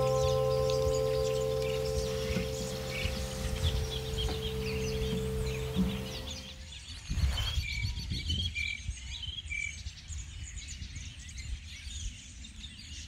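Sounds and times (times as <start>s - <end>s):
low rumbling background: 0.0s - 6.6s.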